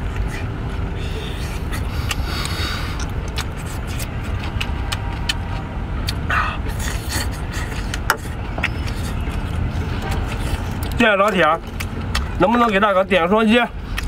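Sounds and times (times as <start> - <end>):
chewing and sucking: 0.0 - 14.0
steady low rumble: 0.0 - 14.0.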